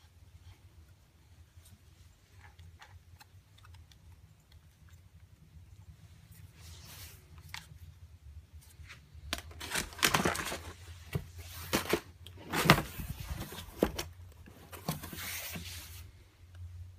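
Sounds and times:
cardboard scraping: 8.8s - 16.2s.

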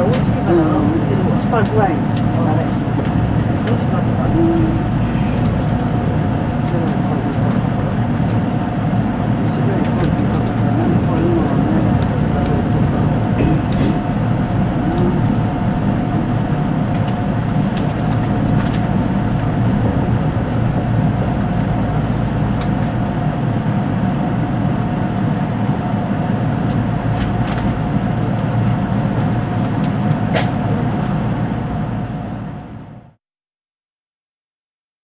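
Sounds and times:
faint constant hum: 0.0s - 33.0s
train cabin low rumble: 0.0s - 33.2s.

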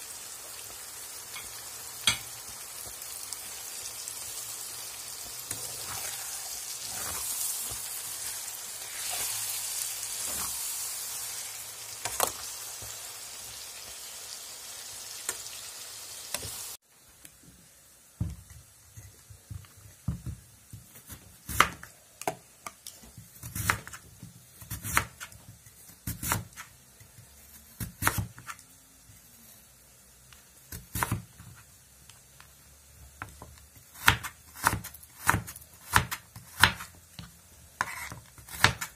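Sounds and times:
food sizzling in a frying pan: 0.0s - 38.9s
spoon stirring in a pan: 5.2s - 11.4s.

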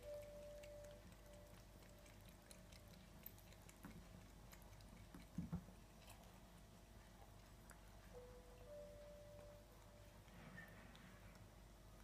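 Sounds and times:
cat lapping water: 0.1s - 8.1s.

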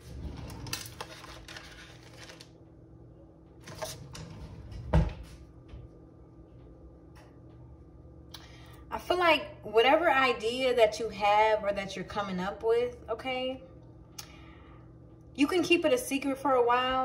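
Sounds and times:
cards rustling: 0.7s - 2.5s.

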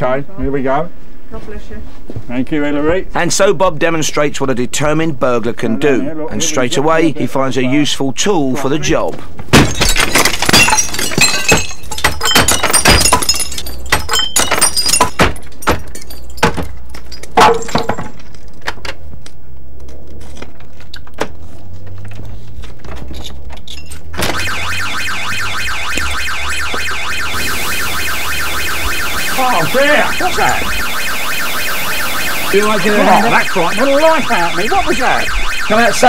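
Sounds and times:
glass smashing: 9.5s - 18.6s
glass shards tinkling: 9.8s - 18.4s
burglar alarm pulsing tone: 24.2s - 36.0s.

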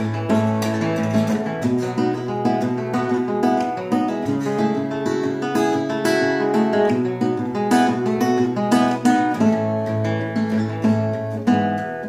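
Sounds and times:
fingerstyle acoustic guitar: 0.0s - 12.0s.

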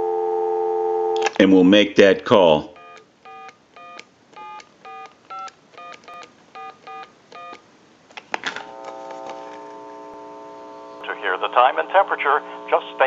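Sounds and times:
steady telephone tone: 0.0s - 1.2s, 2.7s - 7.6s, 8.7s - 13.0s
telephone click: 2.8s - 7.6s
touch-tone dialing beeps: 2.8s - 7.6s.

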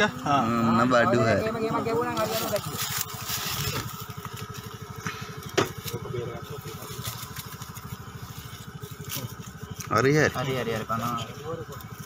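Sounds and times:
small engine idling: 0.0s - 12.0s.

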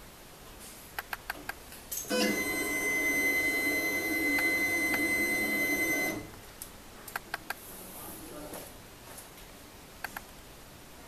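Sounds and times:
printer motor whine: 2.1s - 6.3s.

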